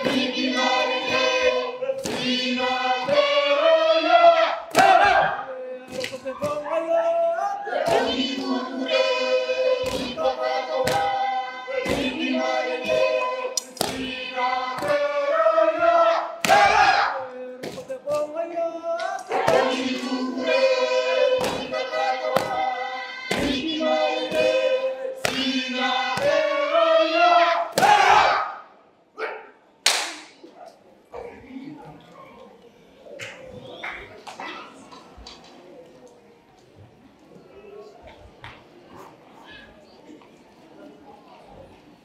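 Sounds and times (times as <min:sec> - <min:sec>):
men and women singing: 0:00.0 - 0:27.9.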